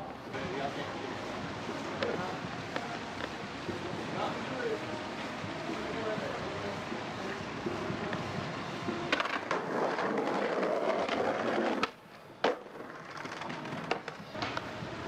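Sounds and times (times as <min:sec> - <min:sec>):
skateboard wheels rolling on concrete: 0:00.0 - 0:15.0
skateboard clacks: 0:08.9 - 0:15.0.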